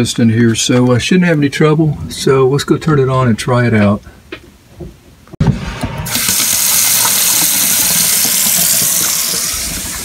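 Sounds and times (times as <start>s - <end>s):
faucet water running into sink: 6.2s - 10.0s.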